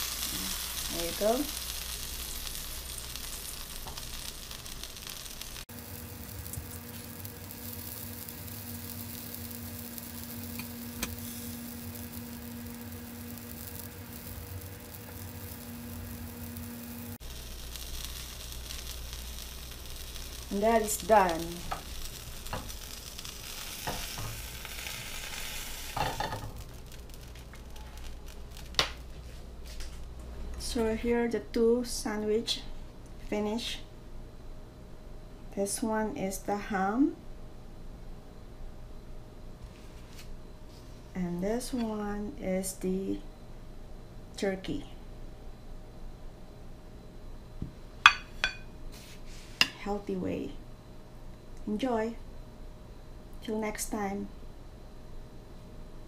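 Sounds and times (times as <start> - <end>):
food sizzling in butter: 0.0 - 29.8, 48.0 - 48.7
low steady hum: 0.0 - 56.0.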